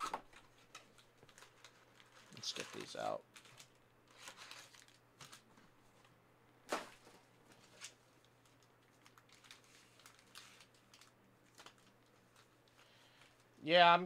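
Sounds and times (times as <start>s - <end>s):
trading cards rustling: 0.4s - 5.6s, 7.5s - 13.5s.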